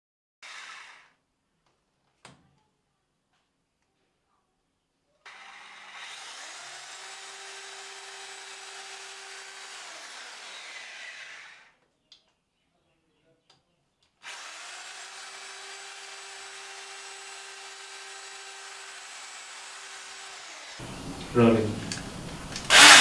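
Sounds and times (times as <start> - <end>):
power drill running: 0.4 - 1.2, 5.3 - 11.7, 14.2 - 23.0
click: 12.1 - 12.4, 13.5 - 14.2, 21.8 - 22.7.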